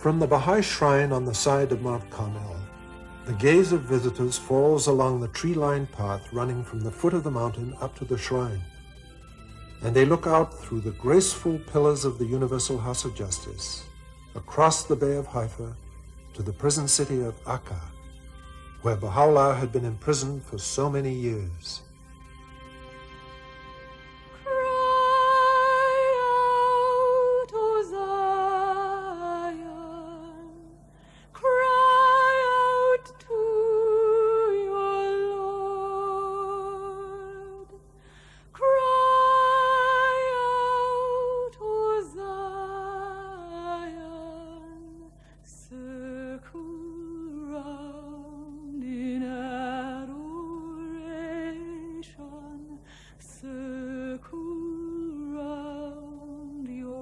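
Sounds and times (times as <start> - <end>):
woman singing with vibrato: 24.4 - 57.0.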